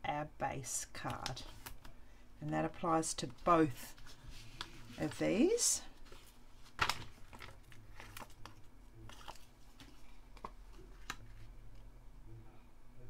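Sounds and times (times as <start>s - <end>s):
paper cards rustling and tapping: 3.2s - 11.9s.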